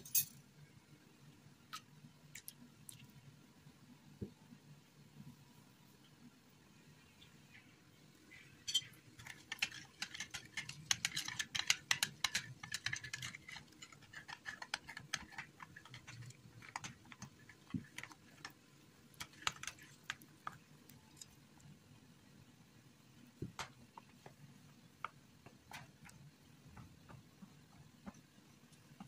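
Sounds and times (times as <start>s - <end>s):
metal spoon clinking bowl: 8.7s - 17.2s.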